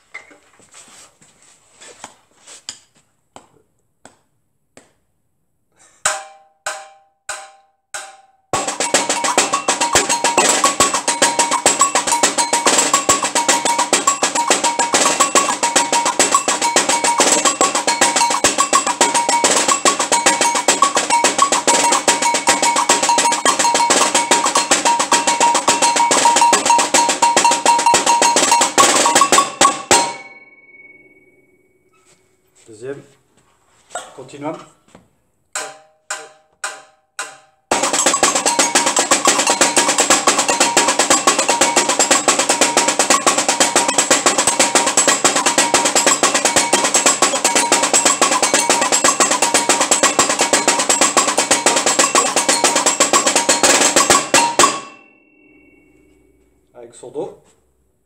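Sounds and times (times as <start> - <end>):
snare drum rhythm: 6.1 - 30.3, 35.6 - 54.9
agogo bell rhythm: 6.1 - 31.5, 35.6 - 56.4
single ringing strokes: 6.2 - 32.7, 35.6 - 56.7.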